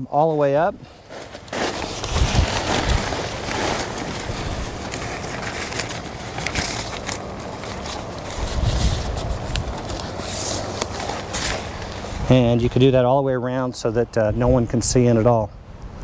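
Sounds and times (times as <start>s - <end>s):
fabric rustling: 0.9s - 12.3s
velcro crackling: 1.0s - 12.3s
wind rumbling on microphone: 2.0s - 4.9s, 8.2s - 10.0s, 14.1s - 16.0s.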